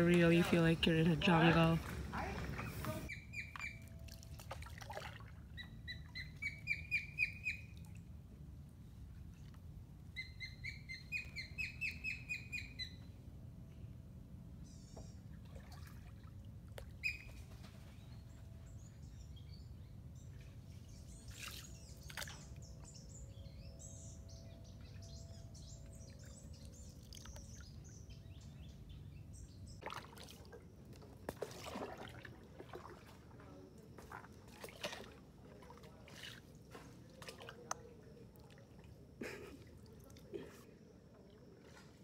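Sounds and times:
birds calling: 0:00.0 - 0:03.8.

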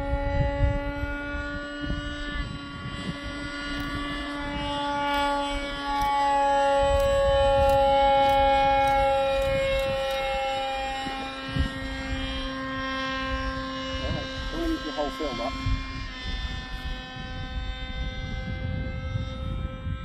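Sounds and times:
model aircraft motor whining: 0:00.0 - 0:20.0.

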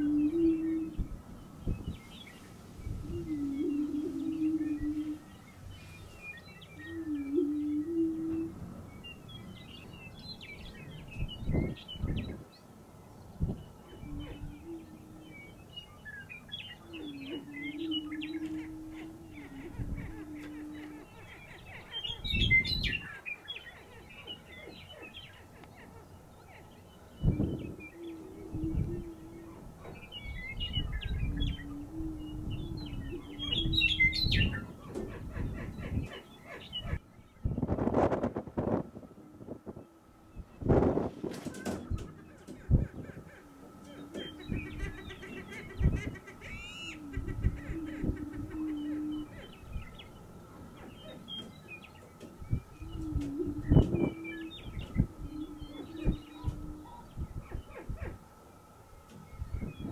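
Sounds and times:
birds chirping and cackling: 0:00.0 - 0:59.9
prairie chickens booming: 0:00.0 - 0:59.9.

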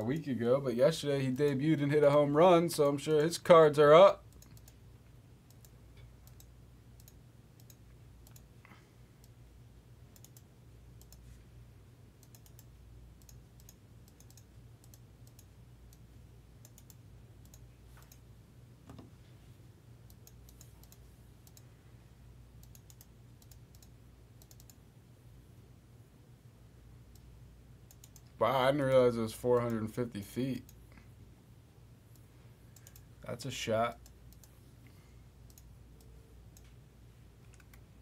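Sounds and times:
low steady hum: 0:00.0 - 0:38.0
computer mouse clicks: 0:04.3 - 0:04.8, 0:05.5 - 0:08.5, 0:10.2 - 0:11.3, 0:12.2 - 0:18.2, 0:20.1 - 0:21.7, 0:22.6 - 0:24.8, 0:27.9 - 0:28.4, 0:32.1 - 0:33.1, 0:33.9 - 0:34.6, 0:35.4 - 0:36.8, 0:37.4 - 0:37.9
keyboard typing: 0:12.2 - 0:16.0, 0:22.6 - 0:24.8, 0:37.4 - 0:37.9.

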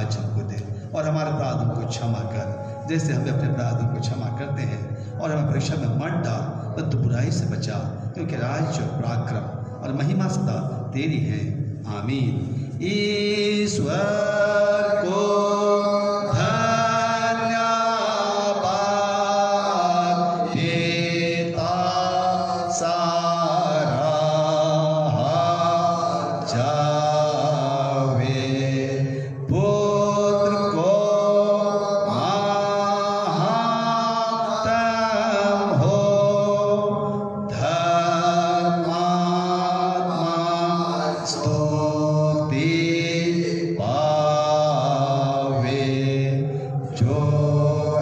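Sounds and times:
man singing a hymn: 0:12.0 - 0:48.0.

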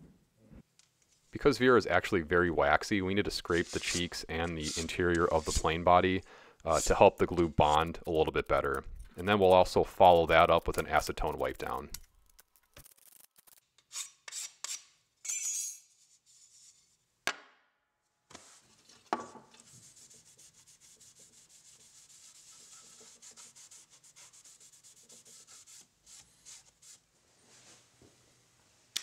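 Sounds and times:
card scraper scraping wood: 0:03.4 - 0:05.8
cloth rubbing on wood: 0:19.6 - 0:27.9.

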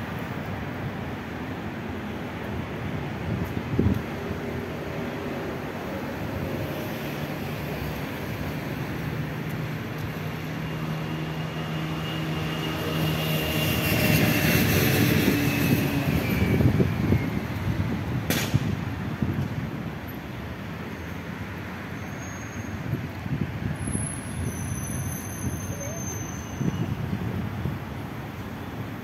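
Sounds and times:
vehicle engine hum passing by: 0:05.6 - 0:18.7.

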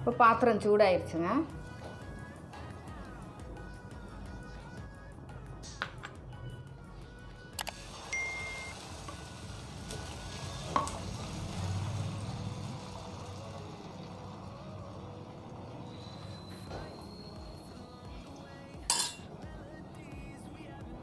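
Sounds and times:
batter sizzling on hot pan: 0:07.8 - 0:18.0
ladle clinking against pan: 0:18.9 - 0:19.3.

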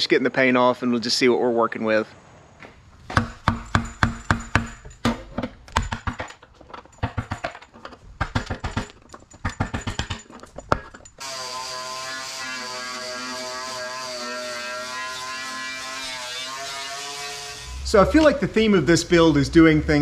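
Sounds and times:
chisel tapping and scraping metal: 0:03.1 - 0:11.2
angle grinder whining: 0:11.2 - 0:18.4.

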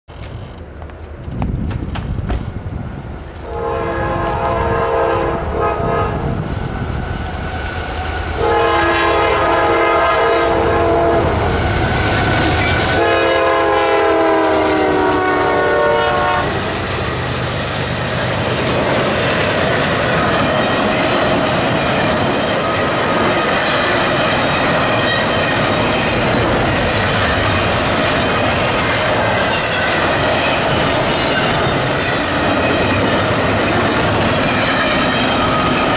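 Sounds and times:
train wheel and rail noise: 0:00.1 - 0:35.9
train horn blasts: 0:03.4 - 0:06.4, 0:08.4 - 0:16.8.

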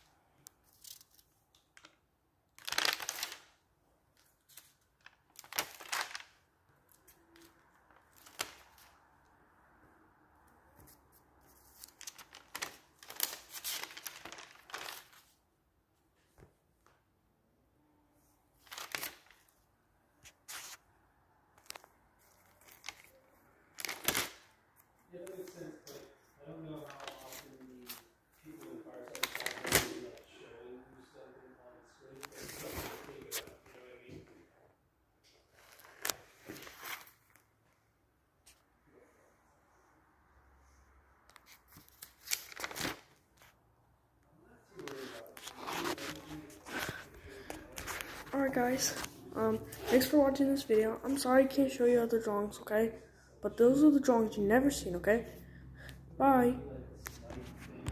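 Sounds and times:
notebook pages rustling: 0:00.6 - 0:02.0, 0:02.6 - 0:03.5, 0:04.2 - 0:09.0, 0:10.8 - 0:15.4, 0:18.6 - 0:20.8, 0:21.5 - 0:24.5, 0:26.7 - 0:30.2, 0:32.2 - 0:33.8, 0:35.5 - 0:37.5, 0:41.3 - 0:43.6, 0:44.8 - 0:51.3, 0:57.0 - 0:57.9
person talking: 0:44.4 - 0:55.4, 0:56.1 - 0:57.9.

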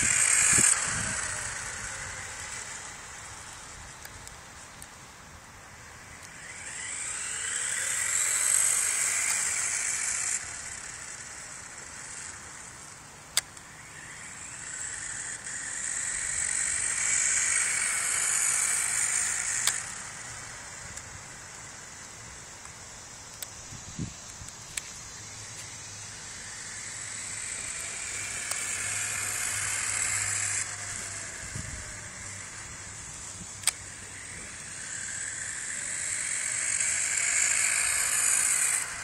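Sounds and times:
toy car electric motor whining: 0:00.0 - 0:39.0
sharp click: 0:19.6 - 0:19.8, 0:33.6 - 0:33.8.

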